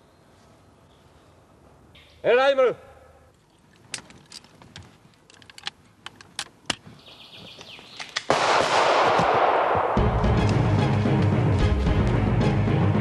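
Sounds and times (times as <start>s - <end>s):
loud pistol shot: 8.2s - 10.3s
low drum-heavy music: 10.0s - 13.0s.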